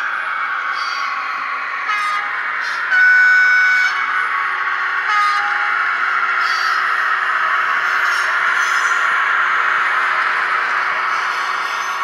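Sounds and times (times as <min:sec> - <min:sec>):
electric locomotive running sound: 0:00.0 - 0:12.0
locomotive horn blasts: 0:01.9 - 0:04.0, 0:05.1 - 0:05.6.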